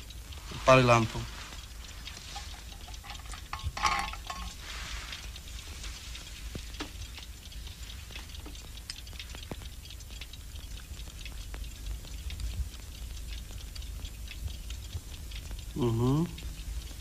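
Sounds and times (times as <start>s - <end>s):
faint clicks and crackles: 0.0s - 17.0s.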